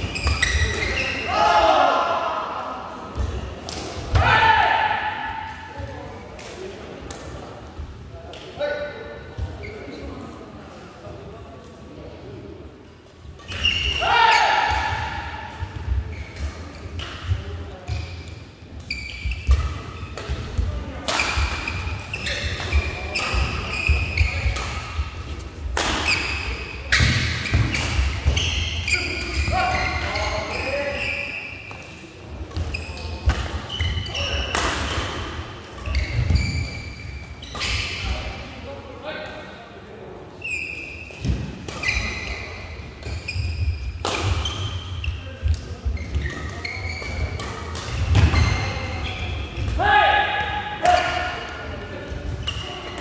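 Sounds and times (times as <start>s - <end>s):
shoes squeaking on court floor: 0.0s - 1.3s, 9.3s - 10.3s, 13.2s - 34.9s, 35.7s - 38.4s, 40.3s - 49.8s, 50.9s - 53.0s
rackets striking shuttlecock: 19.4s - 30.2s, 43.0s - 49.8s.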